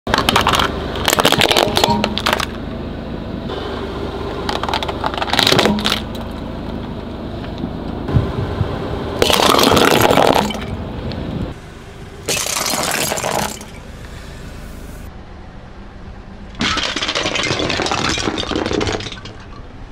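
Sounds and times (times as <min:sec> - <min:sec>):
plastic toys crunching under tyre: 0:00.1 - 0:02.6, 0:04.4 - 0:06.4, 0:09.2 - 0:10.7, 0:12.3 - 0:13.8, 0:16.6 - 0:19.6
car hum: 0:00.1 - 0:19.9.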